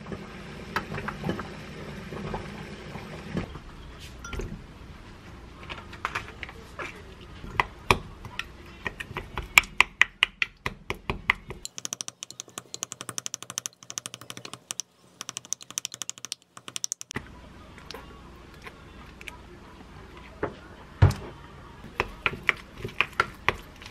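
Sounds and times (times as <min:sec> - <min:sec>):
wooden spoon tapping glass mug: 0:11.6 - 0:17.1.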